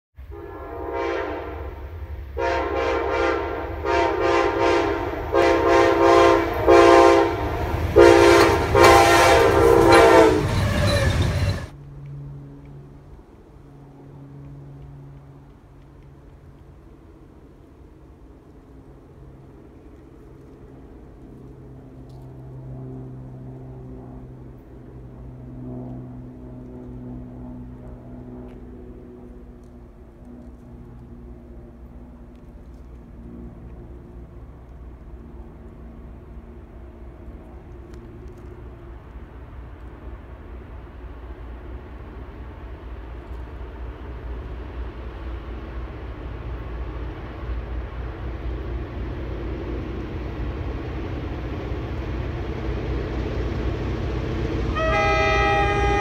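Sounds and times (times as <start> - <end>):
locomotive air horn blasts: 0.2 - 11.7, 54.7 - 56.0
diesel locomotive engine droning: 0.2 - 56.0
low rumble of train: 0.2 - 56.0.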